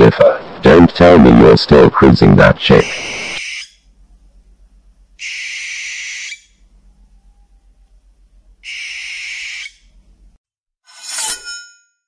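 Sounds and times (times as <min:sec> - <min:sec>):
owl screeching: 0:02.8 - 0:03.8, 0:05.2 - 0:06.6, 0:08.6 - 0:09.9.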